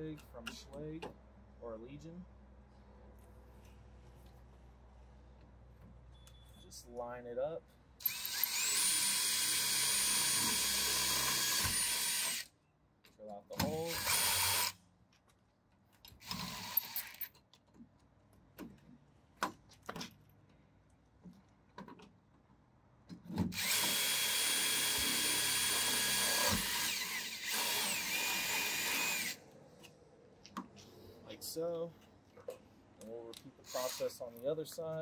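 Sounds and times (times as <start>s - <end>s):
cordless drill boring through metal: 8.0s - 12.5s, 13.8s - 14.8s, 16.2s - 17.2s, 23.5s - 29.4s, 33.6s - 34.2s.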